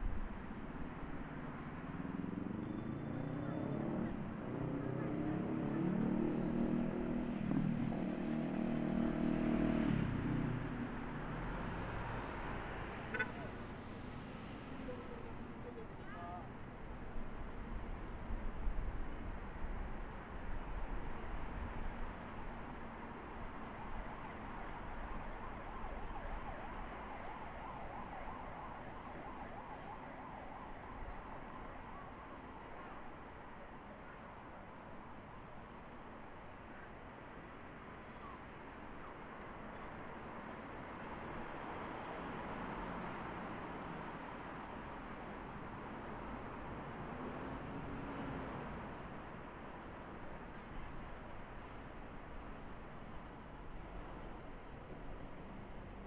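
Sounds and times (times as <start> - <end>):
street traffic: 0.0 - 56.0
distant emergency siren: 2.4 - 7.0, 22.8 - 33.6.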